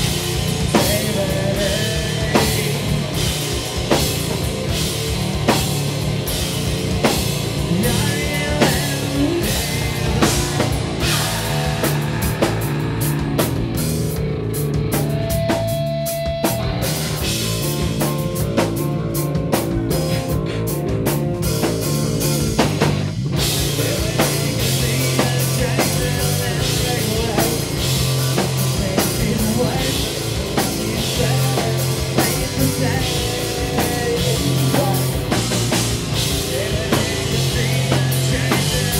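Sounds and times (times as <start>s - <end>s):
distorted electric guitar: 0.0s - 38.9s
drum kit: 0.0s - 38.9s
person singing: 0.5s - 3.3s, 7.6s - 13.4s, 23.5s - 38.9s.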